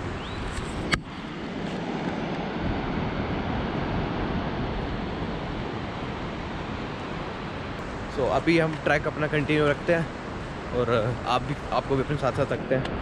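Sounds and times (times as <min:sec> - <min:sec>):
wind on microphone: 0:00.0 - 0:08.4.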